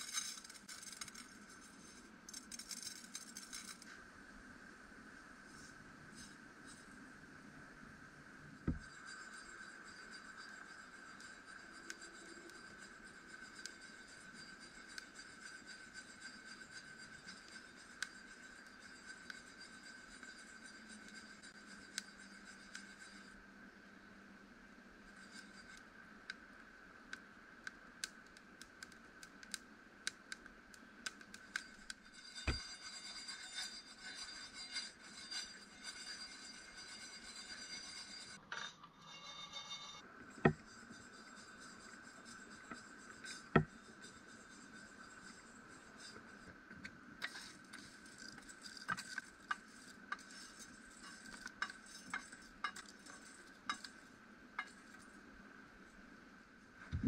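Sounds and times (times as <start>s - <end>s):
beans rattling and scraping in pan: 0.0s - 3.8s.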